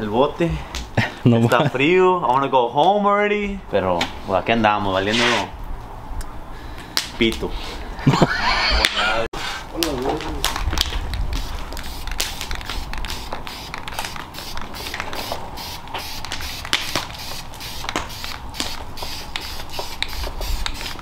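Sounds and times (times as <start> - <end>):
sharp crackling clicks: 9.8 - 21.0
spray paint can hissing: 11.2 - 21.0.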